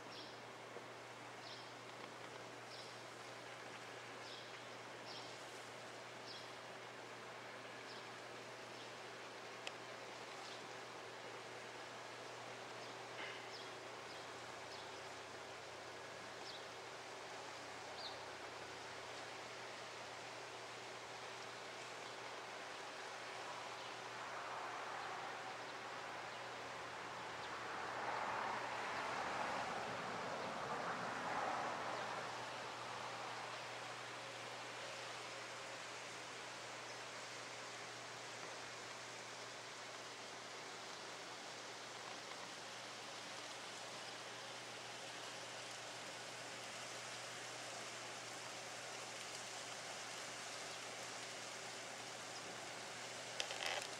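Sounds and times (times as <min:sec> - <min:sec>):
outdoor background hiss: 0:00.0 - 0:53.9.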